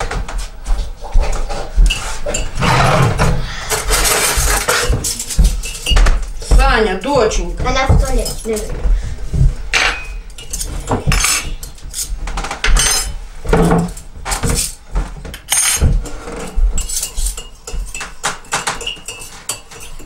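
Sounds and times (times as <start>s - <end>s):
cutlery and dishes clinking: 1.1s - 2.6s, 3.2s - 6.4s, 9.7s - 20.0s.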